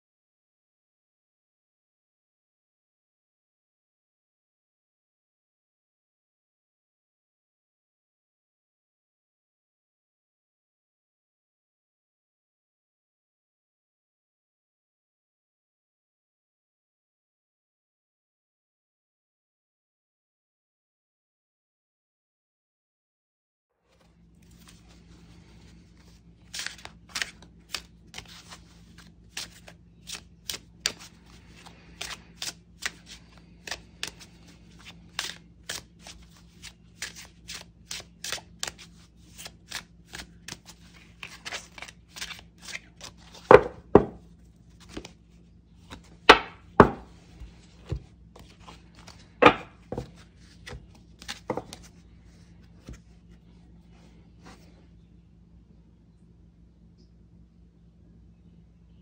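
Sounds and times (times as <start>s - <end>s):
faint steady hum: 23.9s - 59.0s
cards clicking and flicking in hand: 26.4s - 44.2s
cards slapping on table: 41.2s - 44.2s, 45.9s - 47.1s, 47.8s - 51.9s.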